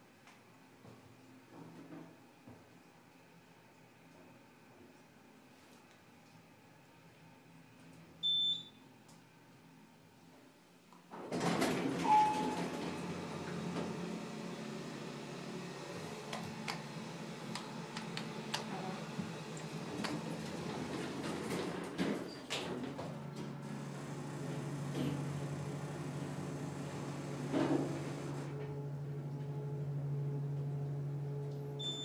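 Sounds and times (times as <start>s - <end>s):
elevator running: 11.2s - 32.0s.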